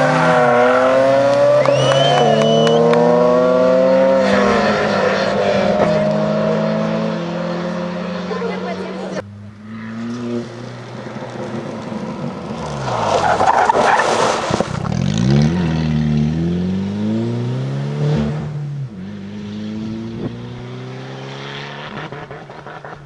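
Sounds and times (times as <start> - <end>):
rally car engine revving: 0.0 - 23.0
tyres scrabbling through dust: 10.8 - 15.0.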